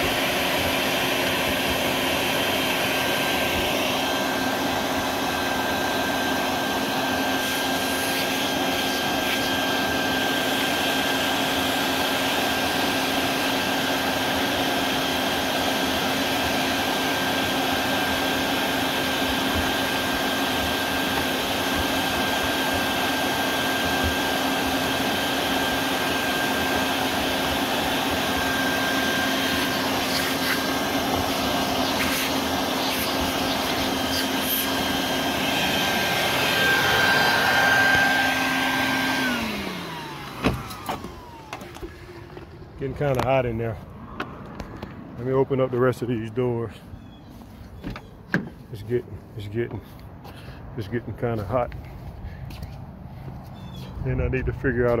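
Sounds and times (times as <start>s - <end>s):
vacuum cleaner running: 0.0s - 43.4s.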